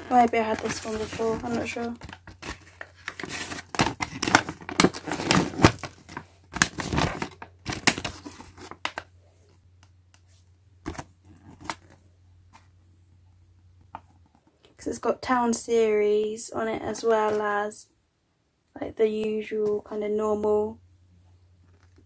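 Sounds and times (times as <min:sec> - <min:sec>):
paper rustling and crackling: 0:00.0 - 0:09.1.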